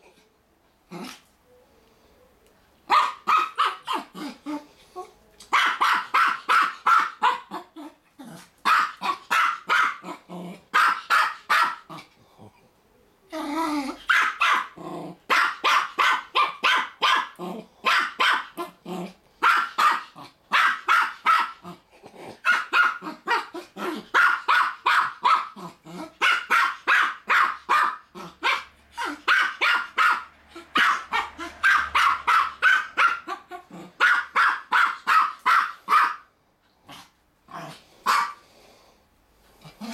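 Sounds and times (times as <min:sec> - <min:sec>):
dog yapping: 0:02.9 - 0:04.4, 0:05.5 - 0:07.9, 0:08.6 - 0:11.9, 0:13.8 - 0:18.8, 0:19.4 - 0:21.7, 0:22.4 - 0:36.3, 0:38.1 - 0:38.4.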